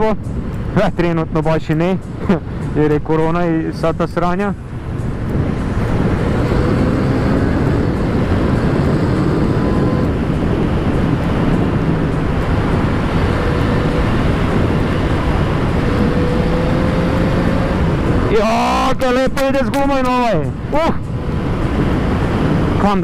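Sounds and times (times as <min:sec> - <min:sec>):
wind noise rushing: 0:00.0 - 0:23.0
motorcycle engine running: 0:04.8 - 0:18.3.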